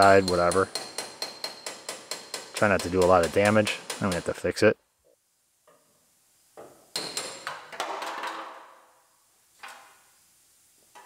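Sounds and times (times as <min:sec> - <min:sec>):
hammer knocking sheet steel: 0:00.0 - 0:04.5.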